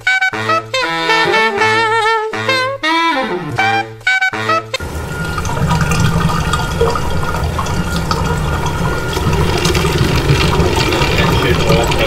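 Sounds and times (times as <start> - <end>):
water rushing into storm drain: 4.8 - 12.0.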